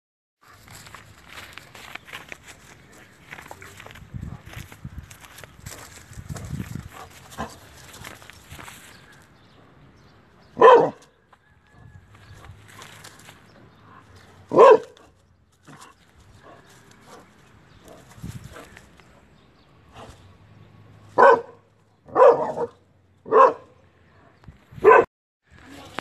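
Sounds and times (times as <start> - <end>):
dog barking: 10.6 - 11.1, 14.5 - 15.1, 21.2 - 25.1.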